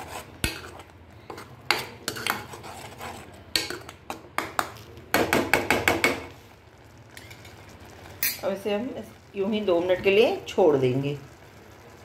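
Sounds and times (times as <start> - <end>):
metal spoon scraping a pan: 0.0 - 4.7, 7.1 - 8.4.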